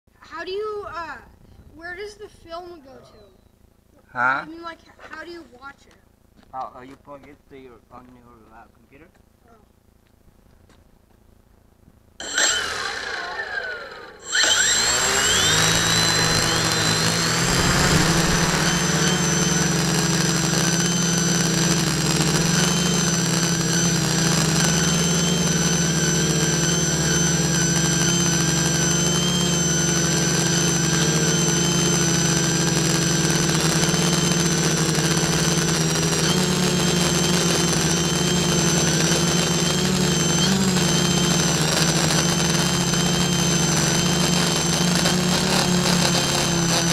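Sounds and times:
drone motors whining: 12.2s - 46.9s.

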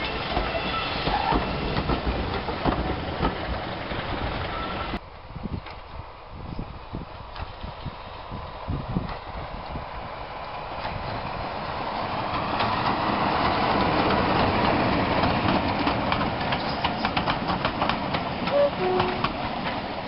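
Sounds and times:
train wheels clacking over rail joints: 0.0s - 5.0s, 10.8s - 20.0s
diesel locomotive engine running: 5.9s - 20.0s.

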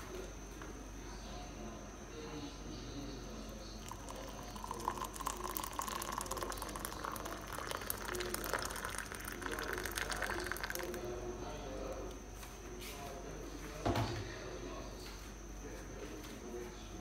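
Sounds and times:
water pouring into a mug: 3.6s - 11.2s.

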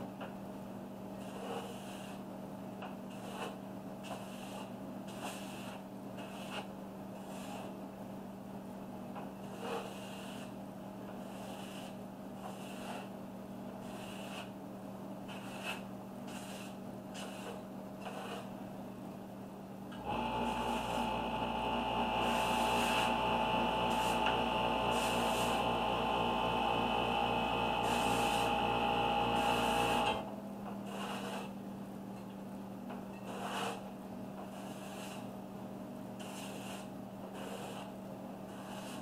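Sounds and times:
airbrush spraying in hissing bursts: 16.3s - 18.4s, 22.2s - 23.2s, 23.9s - 24.2s, 24.9s - 25.6s, 27.8s - 28.5s
low steady hum: 18.8s - 30.8s
motor running: 20.0s - 30.2s.

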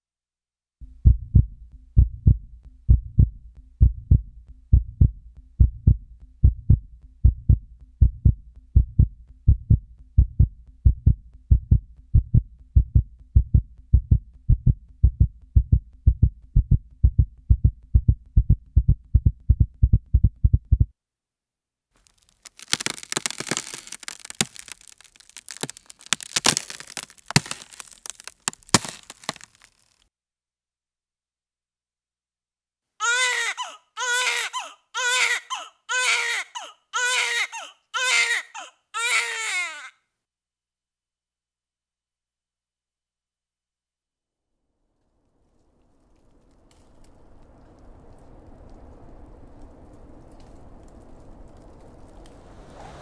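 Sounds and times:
heartbeat thumps: 1.0s - 20.9s
crackling hiss with clicks: 22.0s - 28.4s, 45.0s - 52.8s.

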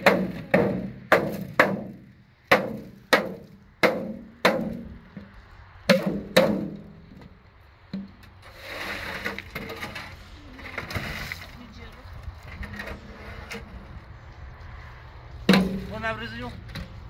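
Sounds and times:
hand striking sheet-metal trough: 0.0s - 4.9s, 5.9s - 6.9s, 15.5s - 15.9s.

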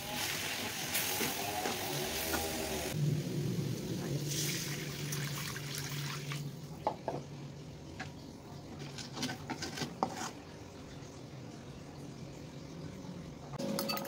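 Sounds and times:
water hissing in a wok: 0.0s - 6.5s.

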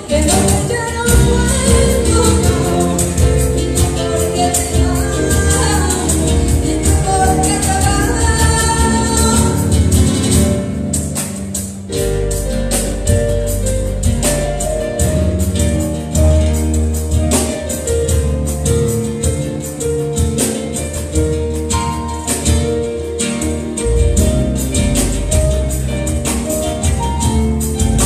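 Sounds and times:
woman singing: 0.0s - 10.0s
live band playing: 0.0s - 28.0s.

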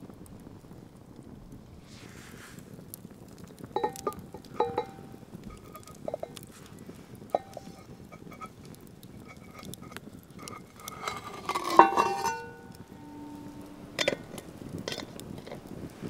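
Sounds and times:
eggshell crackling: 2.7s - 16.0s
clink against cast iron pot: 3.8s - 6.6s, 7.3s - 15.6s.

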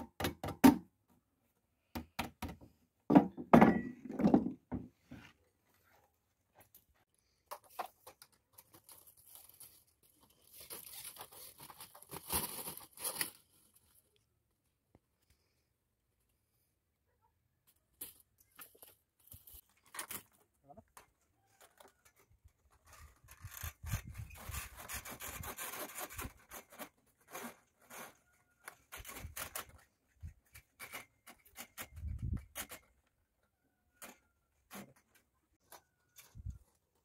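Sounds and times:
plastic conduit scraping metal bars: 19.6s - 37.0s.

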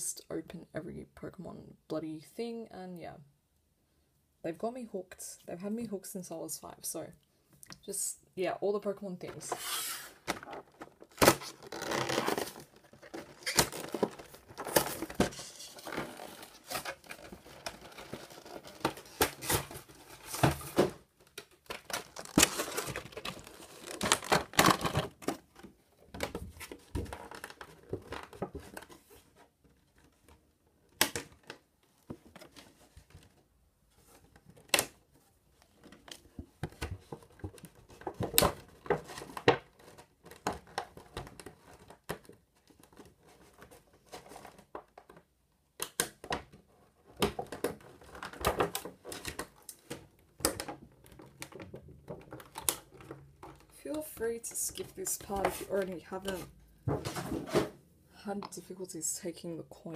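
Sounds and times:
packaging tearing and crinkling: 9.6s - 25.5s.

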